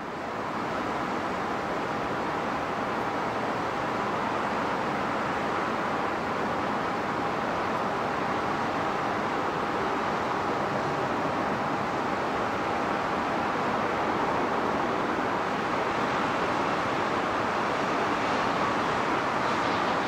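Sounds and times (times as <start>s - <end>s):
distant jet engine roar: 3.4s - 20.0s
faint thin engine whine: 8.6s - 20.0s.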